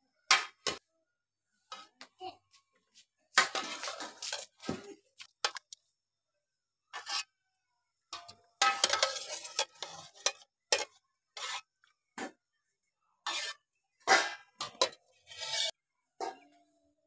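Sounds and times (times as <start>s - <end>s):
metal utensils scraping and clinking: 3.4s - 4.7s, 6.9s - 7.4s, 8.2s - 11.9s, 13.2s - 15.8s.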